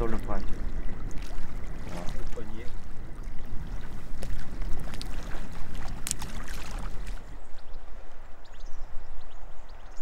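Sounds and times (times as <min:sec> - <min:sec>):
water splashing and lapping: 0:00.0 - 0:08.2
sharp splash: 0:03.9 - 0:07.2.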